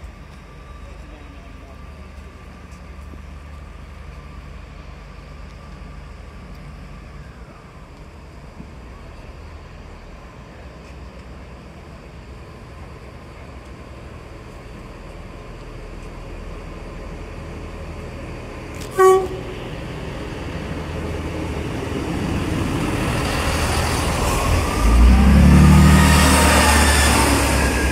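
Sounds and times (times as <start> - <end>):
train approaching: 0.0 - 27.9
train horn blast: 18.8 - 19.7.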